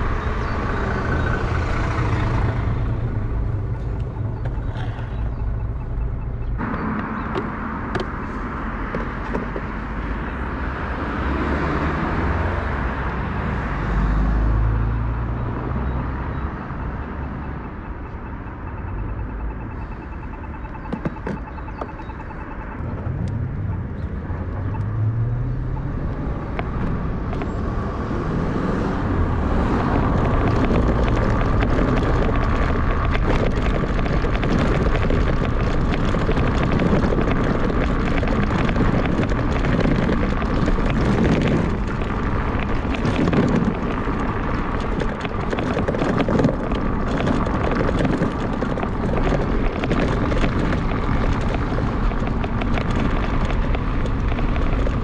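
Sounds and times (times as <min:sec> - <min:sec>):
road noise: 0:00.0 - 0:55.0
wind rushing over microphone: 0:22.8 - 0:55.0.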